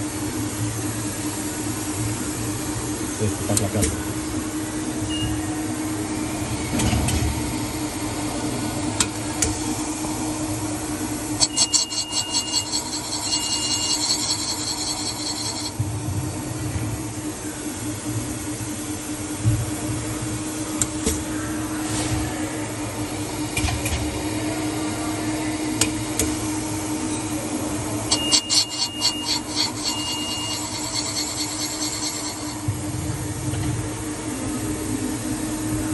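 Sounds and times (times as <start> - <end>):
machine humming: 0.0 - 35.9
short high beeps: 11.4 - 14.6, 28.1 - 31.4
cutter scraping metal: 11.4 - 15.8, 28.1 - 32.7.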